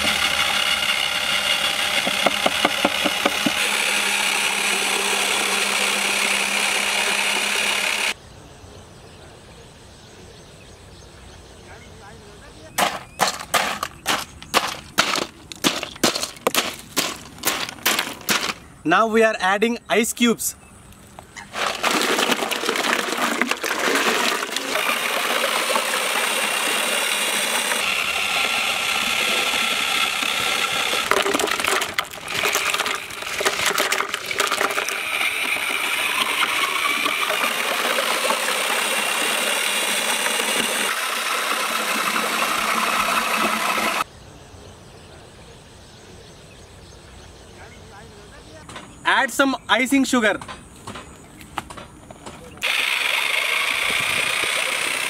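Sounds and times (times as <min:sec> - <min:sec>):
ice cubes clattering into metal pot: 0:12.8 - 0:18.6, 0:21.5 - 0:26.0, 0:30.9 - 0:39.8
milk splashing: 0:21.5 - 0:26.3.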